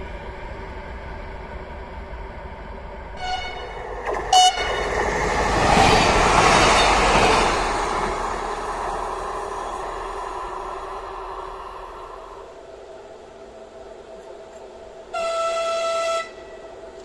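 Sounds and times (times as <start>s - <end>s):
train passing: 0.0s - 17.0s
train horn toots: 3.2s - 5.0s, 6.3s - 7.6s, 15.1s - 16.8s.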